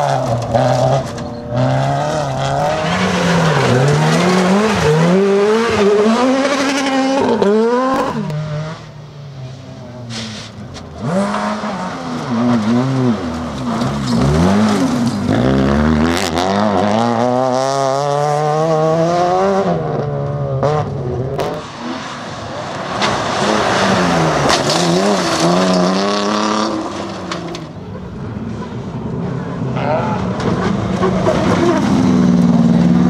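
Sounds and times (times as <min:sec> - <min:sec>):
car engine revving hard: 0:00.0 - 0:08.8, 0:11.0 - 0:20.0, 0:20.6 - 0:27.3.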